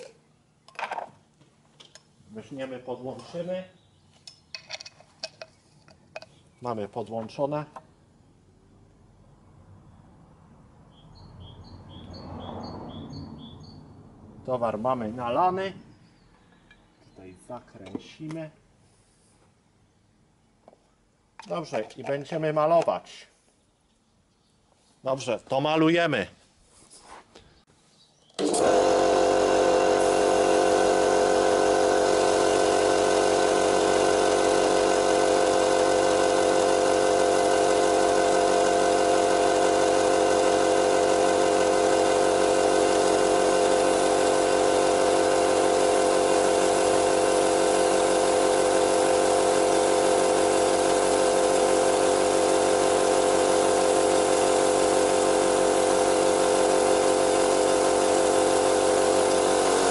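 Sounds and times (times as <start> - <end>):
air compressor switching on: 28.4 - 59.9
compressor motor running: 28.4 - 59.9.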